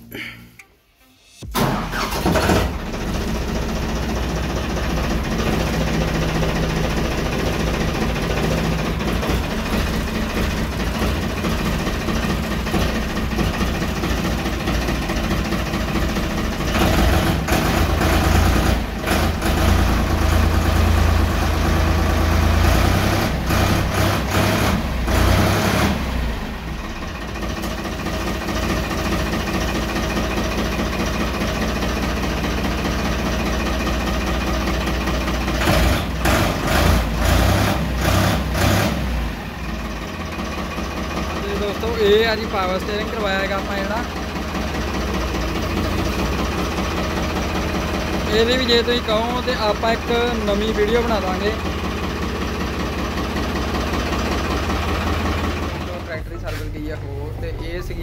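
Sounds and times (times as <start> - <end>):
diesel tractor engine: 0.0 - 58.0.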